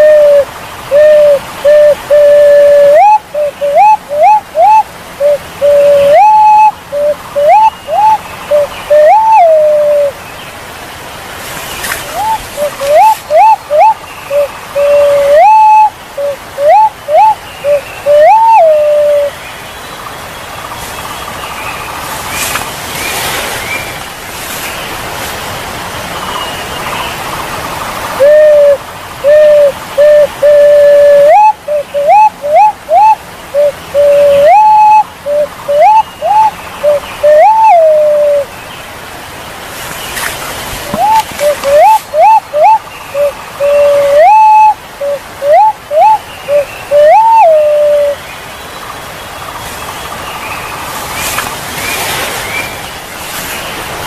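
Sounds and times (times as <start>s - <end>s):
pigeon whistled calls: 0.0s - 10.1s, 11.8s - 19.4s, 28.2s - 38.5s, 40.8s - 48.2s
steady rushing stream noise: 0.0s - 54.0s.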